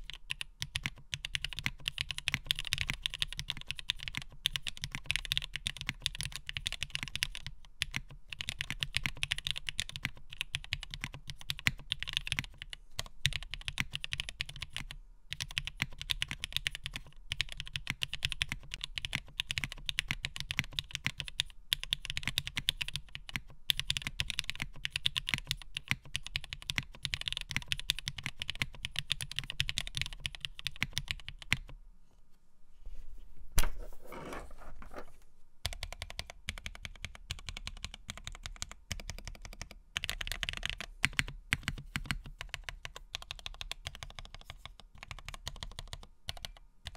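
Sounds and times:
fast mechanical keyboard typing: 0.0s - 31.7s, 35.6s - 46.9s.

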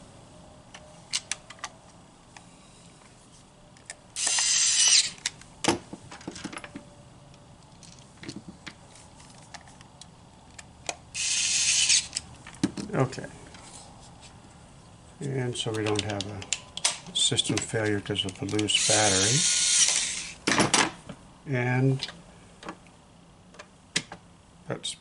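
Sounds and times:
electric screwdriver whirring: 4.2s - 5.2s, 11.2s - 12.2s, 18.8s - 20.4s
light clicks and handling knocks: 15.2s - 18.7s.

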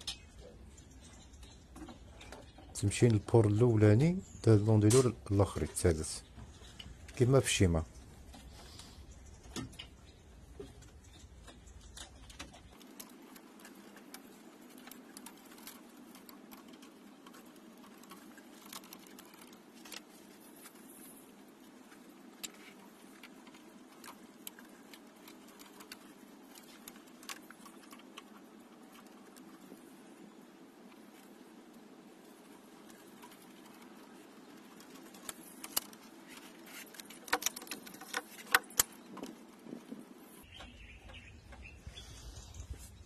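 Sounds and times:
cable plugs clicking and rattling: 21.8s - 29.8s, 32.4s - 40.0s.

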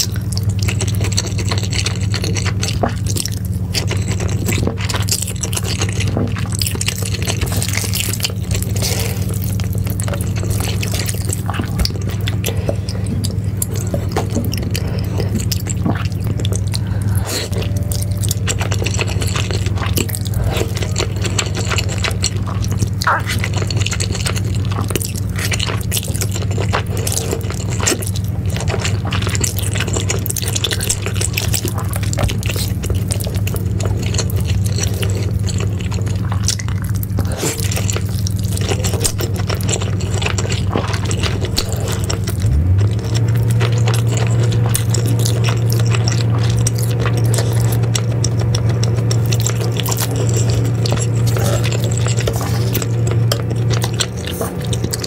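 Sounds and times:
chewing: 0.0s - 55.0s
slurping noodles: 0.0s - 55.0s
loud low hum: 3.4s - 35.4s, 41.2s - 55.0s
sticky mouth clicks: 22.4s - 23.5s.

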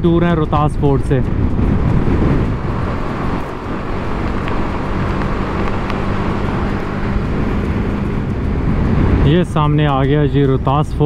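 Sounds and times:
motorcycle engine cruising: 0.0s - 11.0s
wind rush from riding: 0.0s - 11.0s.

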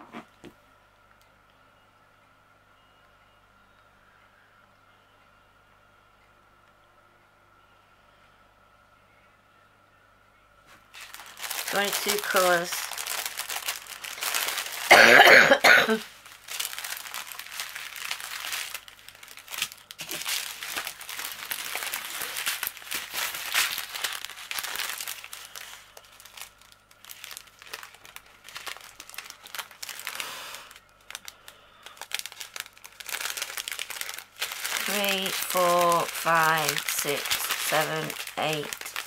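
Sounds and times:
plastic bags crinkling: 10.8s - 39.0s
person coughing: 14.9s - 16.1s.

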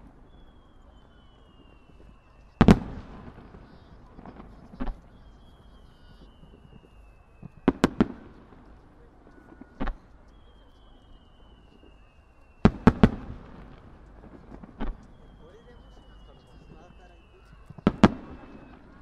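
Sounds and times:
firework bang: 0.0s - 8.7s, 12.6s - 19.0s
firework bursts cracking: 0.0s - 19.0s
firework whistle falling in pitch: 0.0s - 19.0s.

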